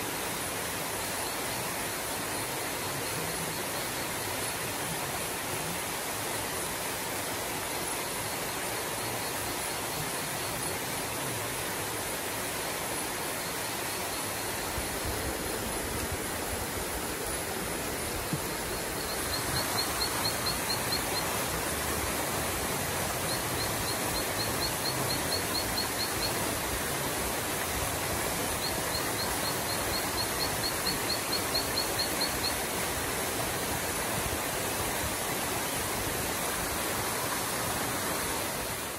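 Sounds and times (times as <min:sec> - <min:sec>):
steady hiss: 0:00.0 - 0:38.9
rapid high chirps: 0:18.6 - 0:22.4.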